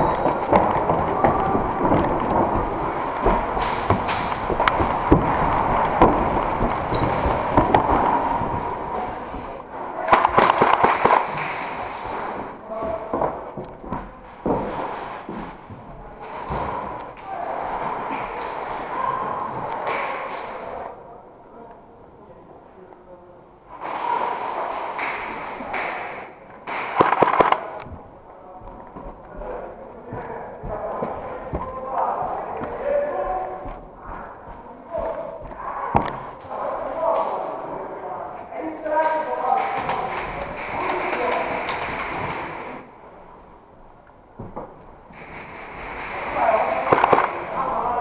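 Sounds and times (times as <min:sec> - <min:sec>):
footsteps on wooden boards: 0:00.0 - 0:09.6, 0:11.2 - 0:17.1, 0:27.8 - 0:36.4
sharp gun cracks: 0:10.1 - 0:11.7, 0:25.0 - 0:27.8, 0:46.1 - 0:47.4
airsoft gunfire: 0:10.1 - 0:11.8, 0:26.6 - 0:27.8, 0:45.2 - 0:47.6.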